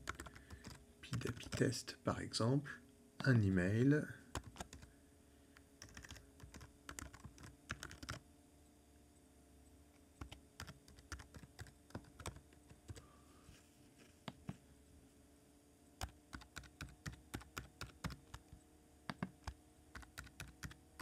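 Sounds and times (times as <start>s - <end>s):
keyboard typing: 0.0s - 1.7s, 4.3s - 4.9s, 5.8s - 8.2s, 10.2s - 13.1s, 16.0s - 21.0s.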